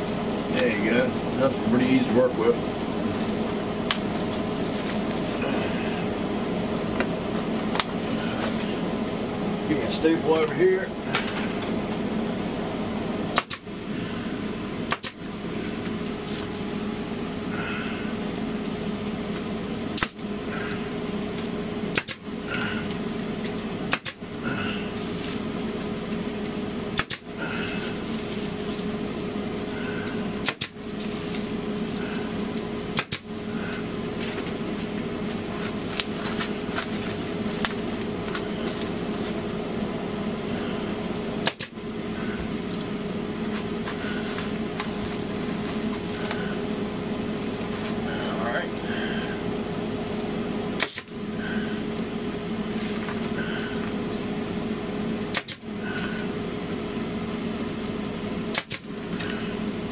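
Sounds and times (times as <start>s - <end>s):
steady machine hum: 0.0s - 59.9s
pneumatic staple gun firing: 13.4s - 13.6s, 14.9s - 15.2s, 21.9s - 22.2s, 23.9s - 24.2s, 27.0s - 27.2s, 30.4s - 30.8s, 33.0s - 33.2s, 41.4s - 41.7s, 50.8s - 51.1s, 55.3s - 55.6s, 58.5s - 58.9s.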